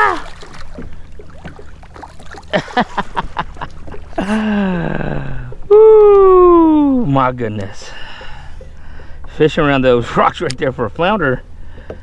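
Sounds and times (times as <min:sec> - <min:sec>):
man exclaiming ooh: 0:04.7 - 0:07.1.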